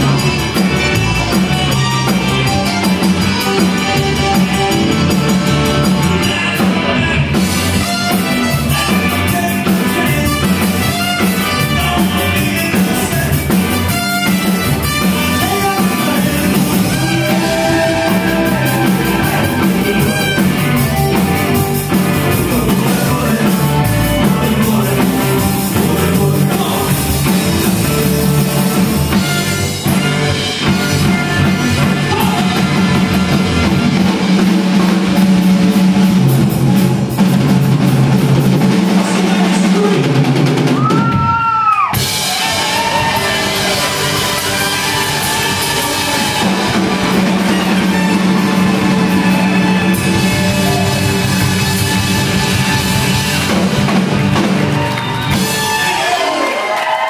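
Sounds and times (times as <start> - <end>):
live rock and roll band: 0.0 - 57.0
person singing: 6.0 - 14.1, 15.1 - 29.2, 30.6 - 32.8.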